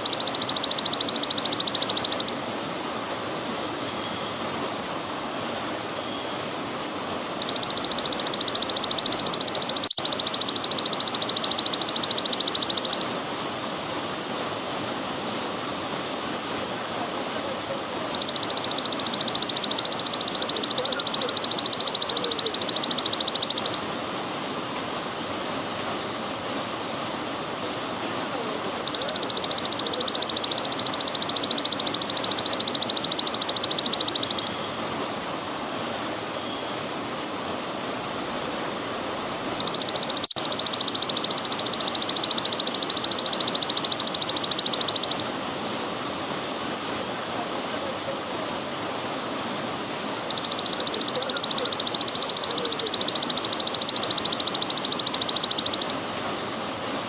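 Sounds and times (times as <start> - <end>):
grasshopper buzzing trill: 0.0 - 2.4, 7.4 - 13.1, 18.1 - 23.8, 28.8 - 34.6, 39.5 - 45.3, 50.2 - 56.0.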